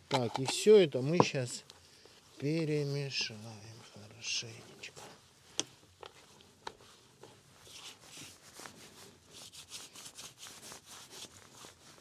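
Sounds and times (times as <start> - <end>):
hands rubbing spices into meat: 2.2 - 12.0.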